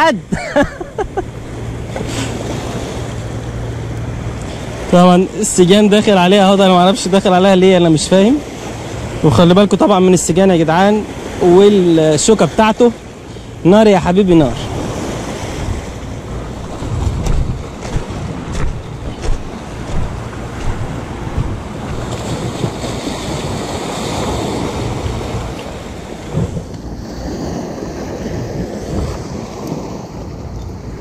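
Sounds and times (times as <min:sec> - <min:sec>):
waves breaking on rocky shore: 0:00.0 - 0:31.0
wind buffeting microphone: 0:14.0 - 0:31.0.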